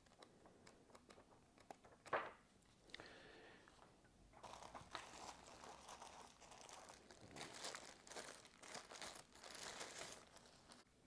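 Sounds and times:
packaging wrap crinkling: 4.4 - 10.9.

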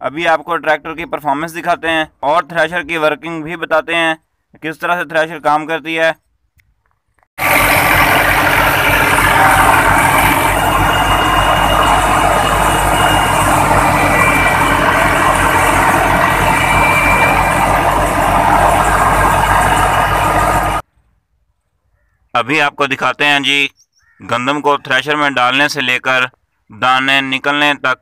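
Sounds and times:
thresher drum and belts whirring: 7.4 - 20.8
tractor diesel engine running: 7.4 - 20.9.

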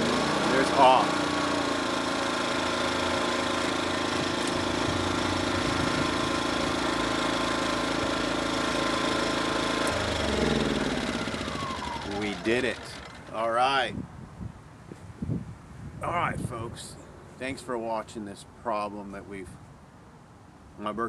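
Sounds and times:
generator engine running: 0.0 - 13.8.

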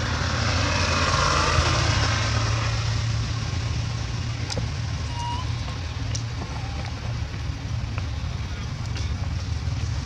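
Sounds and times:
low steady rumble: 0.0 - 10.0
vehicle passing on road: 0.0 - 10.0.

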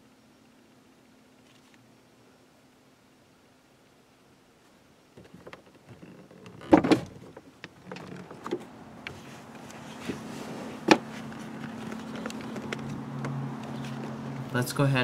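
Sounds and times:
car door swinging open: 6.5 - 8.7, 10.8 - 13.4.

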